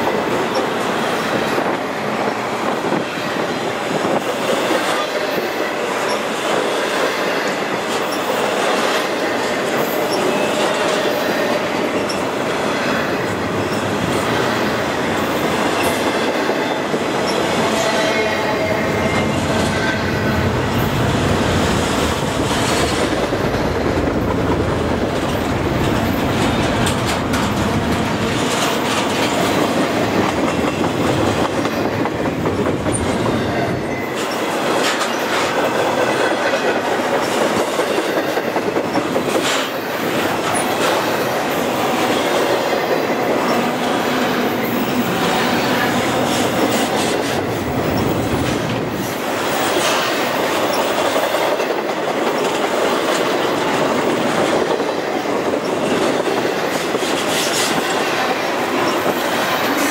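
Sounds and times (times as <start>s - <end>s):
wheels clattering over rail joints: 22.0s - 33.4s.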